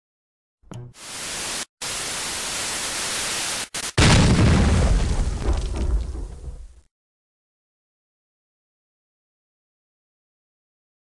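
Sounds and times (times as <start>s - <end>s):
loud static hiss: 1.0s - 4.2s.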